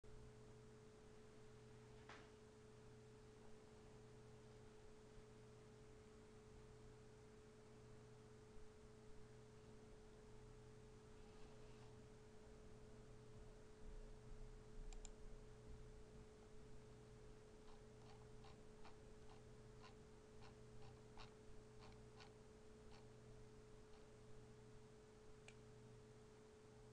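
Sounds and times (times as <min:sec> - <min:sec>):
faint steady hum: 0:00.1 - 0:26.9
faint clicks: 0:14.9 - 0:15.2.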